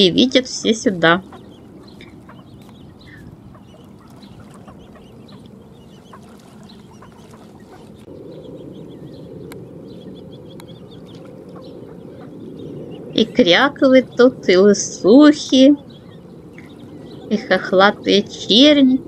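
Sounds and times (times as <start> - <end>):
ducks and ducklings calling: 0.0 - 19.0.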